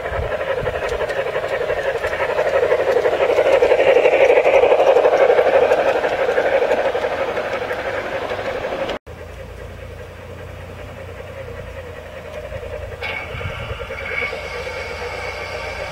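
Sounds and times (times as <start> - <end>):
model train motor humming: 0.0 - 15.9
wheels clattering on track: 0.0 - 15.9.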